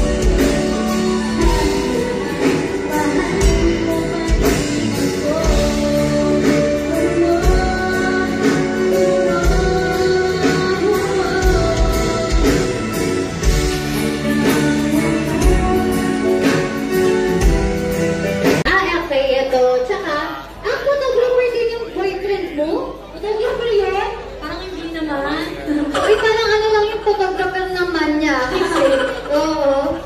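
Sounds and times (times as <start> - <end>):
woman singing: 0.0 - 18.6
drum kit and keyboard: 0.0 - 19.0.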